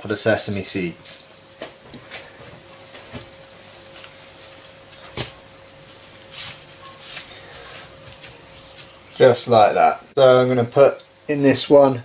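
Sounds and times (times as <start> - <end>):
faint steady hum: 0.0 - 12.0
plastic film crinkling: 6.2 - 9.0.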